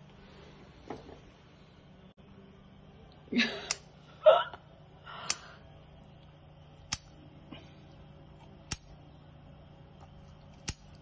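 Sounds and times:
scissors snipping: 6.9 - 7.1, 8.7 - 8.9, 10.5 - 11.0.

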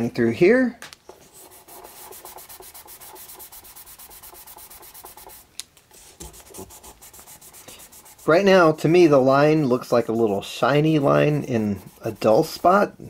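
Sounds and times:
sandpaper scratching on wood: 1.3 - 5.4, 6.2 - 8.8, 9.8 - 13.0.

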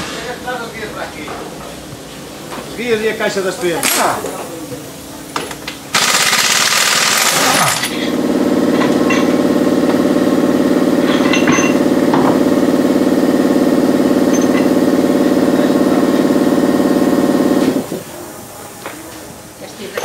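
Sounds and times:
impact wrench rattle: 5.9 - 8.0
pulsing machine drone: 5.9 - 18.7.

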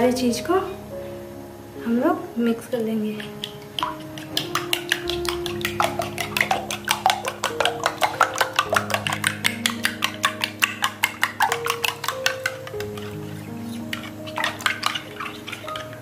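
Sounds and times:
soft background music: 0.0 - 16.0
spoon clicking against glass bowl: 3.2 - 13.1.

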